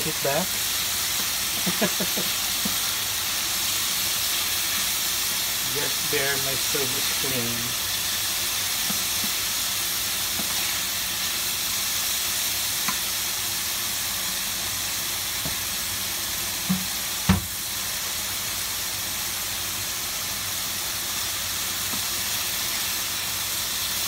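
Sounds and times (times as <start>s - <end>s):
food sizzling in oil: 0.0s - 24.0s.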